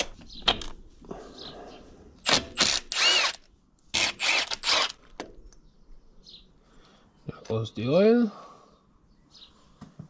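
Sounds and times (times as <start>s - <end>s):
ratcheting tool bursts: 2.2s - 5.0s.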